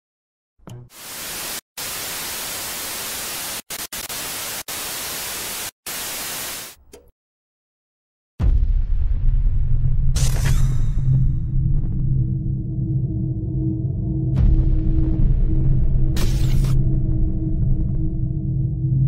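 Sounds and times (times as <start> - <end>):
television static hiss: 1.0 - 6.8
deep bass music: 11.1 - 19.0.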